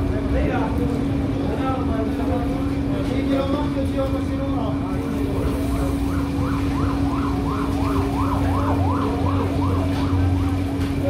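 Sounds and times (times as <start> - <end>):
siren yelping: 5.3 - 10.8.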